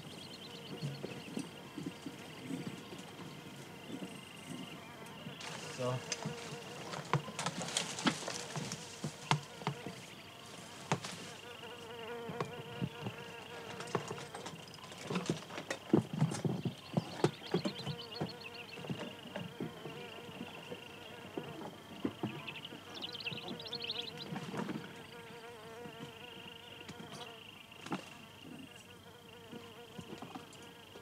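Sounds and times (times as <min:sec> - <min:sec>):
insect drone: 0:00.0 - 0:31.0
climbers scuffing on rock: 0:05.4 - 0:11.5.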